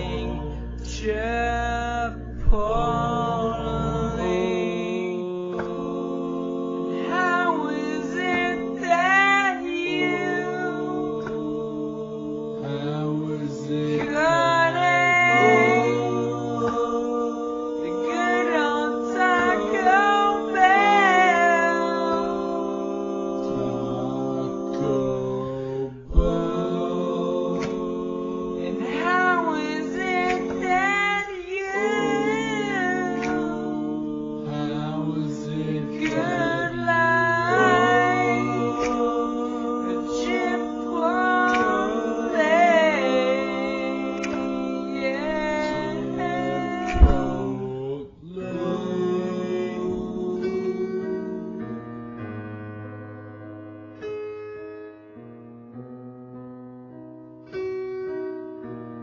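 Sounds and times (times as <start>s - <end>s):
long held chords: 0.0s - 22.1s
slowed-down singing voice: 0.0s - 50.8s.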